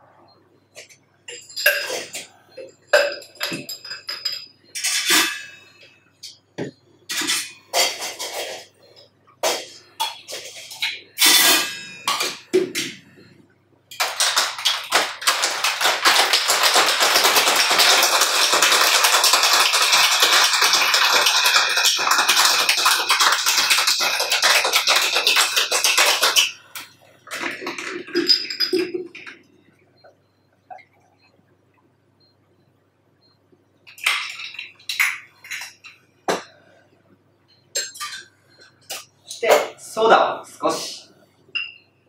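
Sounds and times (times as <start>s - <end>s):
ice rattling in cocktail shaker: 14.0s - 26.6s.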